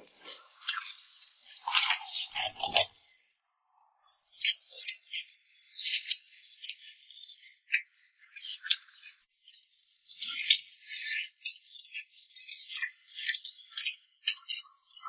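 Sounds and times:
person chewing food: 1.5 - 3.0.

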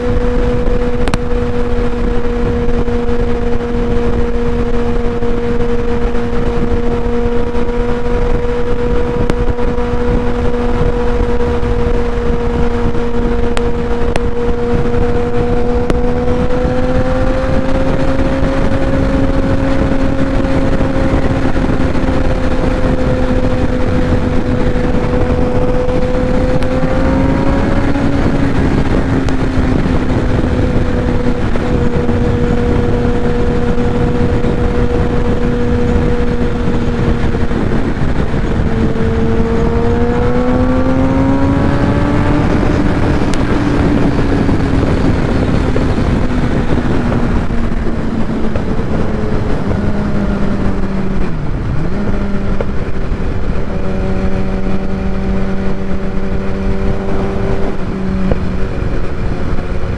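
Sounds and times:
motorcycle engine cruising: 0.0 - 59.9
wind rush: 0.0 - 59.9.

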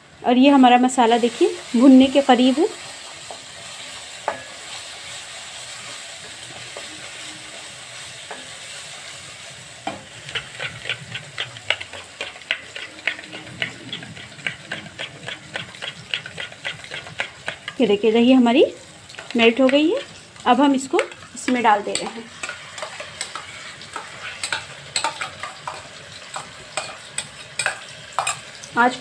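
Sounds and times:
spices sizzling in oil: 0.0 - 29.0
metal spoon beating in bowl: 10.3 - 17.8, 20.9 - 28.4.

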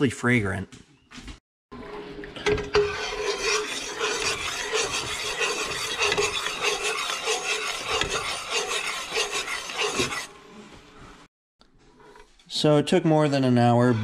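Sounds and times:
metal spoon scraping a pot: 2.7 - 10.3.

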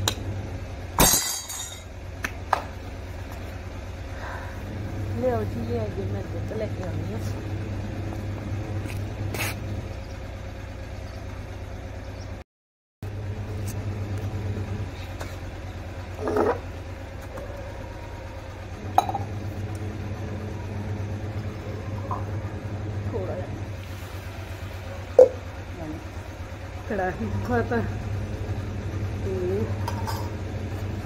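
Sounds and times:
steel utensils clinking: 1.0 - 1.9
motor humming: 1.7 - 12.4, 13.0 - 31.0.

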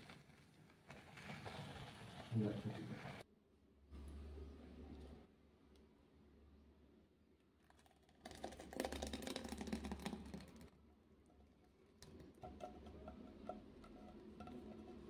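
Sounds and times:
thick liquid pouring into bowl: 7.7 - 10.7.

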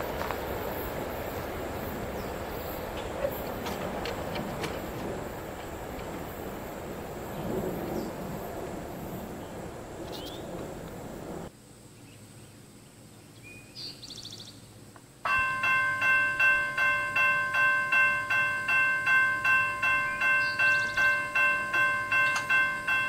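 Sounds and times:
railroad crossing bell ringing: 15.2 - 23.0.

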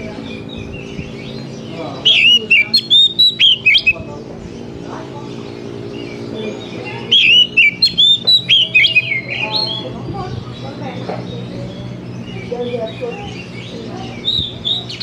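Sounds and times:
bird singing whistled notes: 0.4 - 4.1, 6.0 - 10.0.

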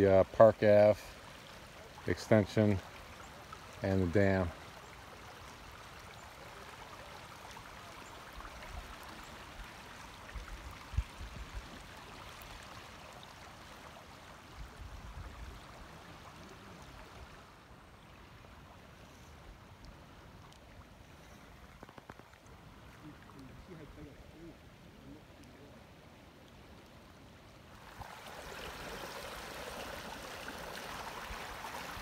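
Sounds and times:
river water rushing: 22.4 - 32.0.

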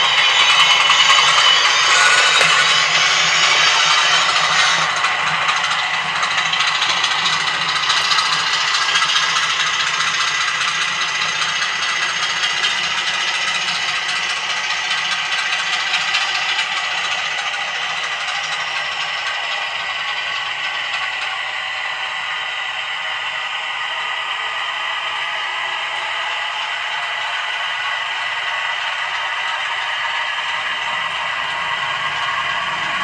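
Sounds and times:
model train wheels rattling: 0.0 - 21.4
model diesel engine sound: 0.0 - 33.0.

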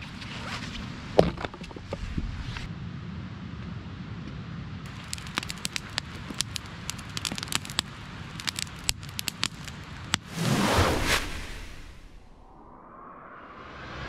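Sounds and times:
campfire crackling and snapping: 4.9 - 10.6
low rumble: 10.4 - 14.0.

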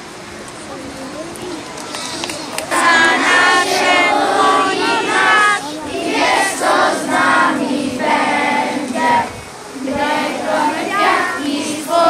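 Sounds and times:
children singing: 2.6 - 12.0
women singing: 2.7 - 12.0.

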